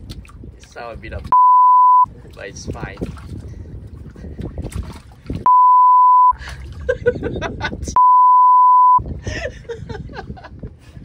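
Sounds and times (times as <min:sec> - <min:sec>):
high censor beep: 0:01.4 - 0:02.1, 0:05.5 - 0:06.4, 0:08.0 - 0:09.0.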